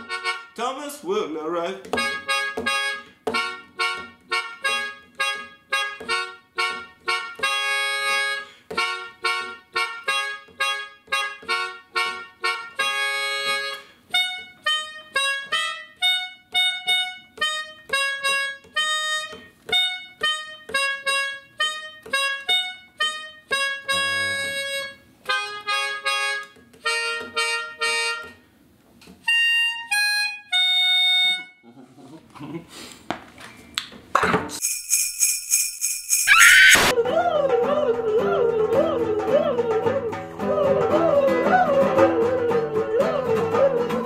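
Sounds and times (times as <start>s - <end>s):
melodica staccato notes: 0.0s - 1.0s, 1.9s - 28.4s, 29.3s - 31.6s.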